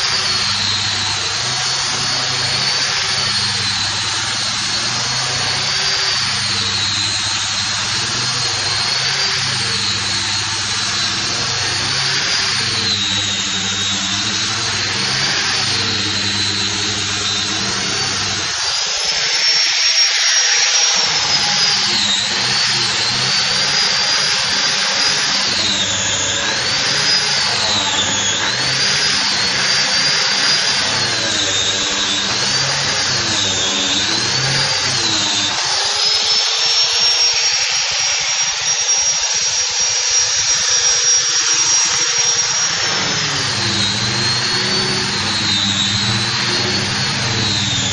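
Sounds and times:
grinder sanding wood: 0:00.0 - 0:38.7, 0:39.7 - 0:47.9.

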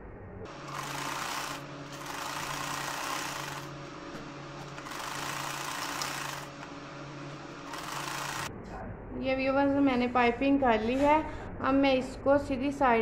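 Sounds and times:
sewing machine stitching: 0:00.5 - 0:03.8, 0:04.6 - 0:06.7, 0:07.6 - 0:08.5.

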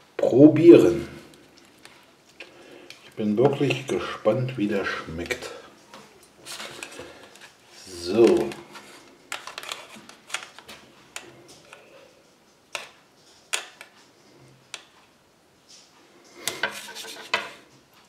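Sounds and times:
cutlery scraping foil tray: 0:06.4 - 0:07.6, 0:16.4 - 0:17.7.

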